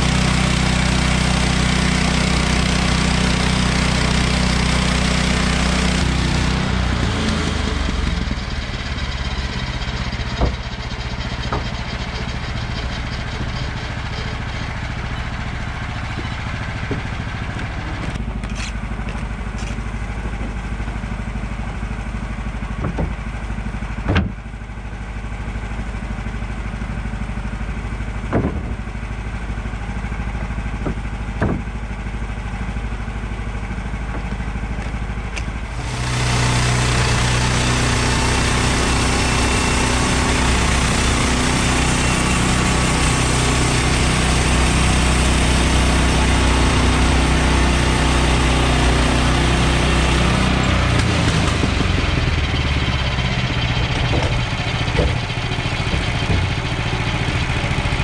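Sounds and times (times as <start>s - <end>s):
gasoline engine idling: 6.0s - 36.0s, 50.5s - 58.0s
boards being set down: 10.4s - 10.6s, 22.8s - 23.3s, 24.0s - 24.4s, 28.3s - 28.8s, 30.4s - 31.8s, 34.1s - 35.0s, 53.9s - 56.7s.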